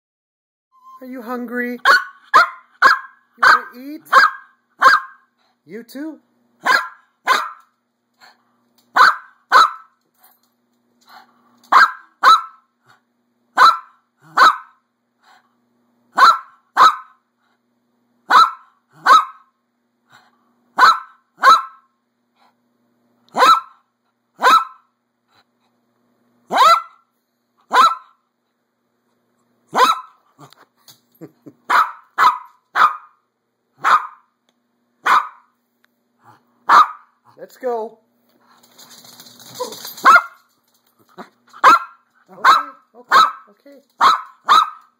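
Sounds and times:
small dog barking: 1.8 - 5.3, 6.6 - 7.7, 8.9 - 9.9, 11.7 - 12.7, 13.6 - 14.8, 16.2 - 17.2, 18.3 - 19.5, 20.8 - 21.9, 23.3 - 23.8, 24.4 - 24.9, 26.5 - 27.1, 27.7 - 28.2, 29.7 - 30.2, 31.7 - 33.2, 33.8 - 34.3, 35.0 - 35.5, 36.6 - 37.2, 40.0 - 40.4, 41.6 - 44.9.

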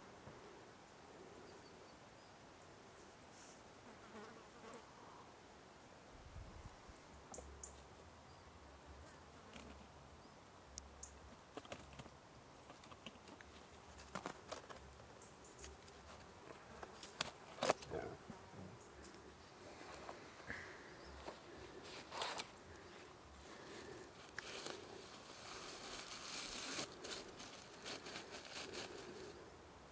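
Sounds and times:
faint insect buzz: 0.3 - 5.4, 14.2 - 29.9
foil crinkling: 23.6 - 29.4.

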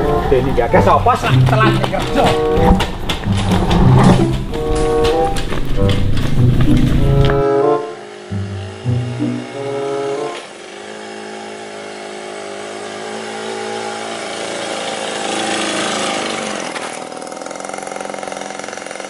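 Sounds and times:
small motorbike engine passing: 0.0 - 19.0.

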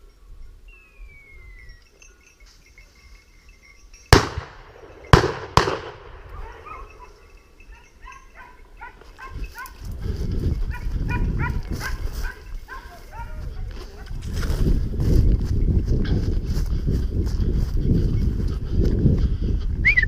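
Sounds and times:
gunshots: 4.1 - 6.4
dogs barking and yapping: 6.2 - 14.4.

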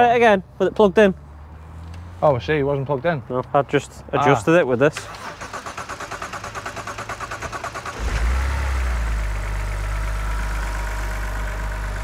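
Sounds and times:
car starter cranking: 4.9 - 9.0
car engine running lumpy: 6.8 - 12.0.

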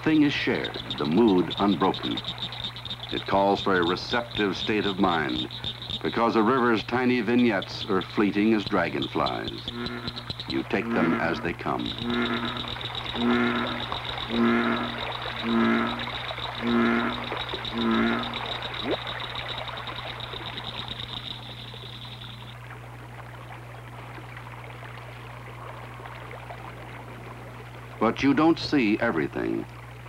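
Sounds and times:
frog croaking deeply: 0.0 - 22.6
steady low hum: 0.0 - 30.0
high fast trill: 7.4 - 22.5.

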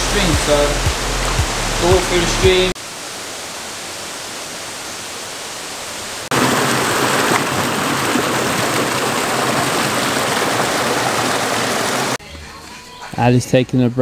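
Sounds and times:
flowing water rushing: 0.0 - 12.2
water splashing into a pool: 6.3 - 12.2.

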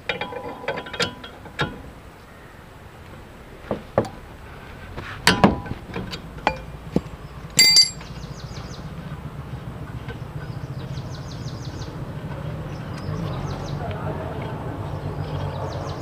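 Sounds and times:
metal clinks and knocks: 6.5 - 6.7, 7.6 - 8.1.

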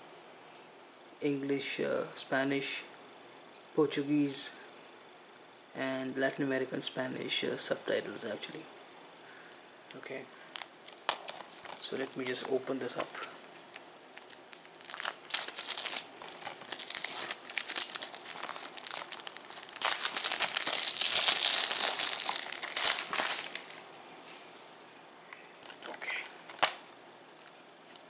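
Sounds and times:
plastic wrap crinkling: 10.4 - 23.9, 25.6 - 28.0.

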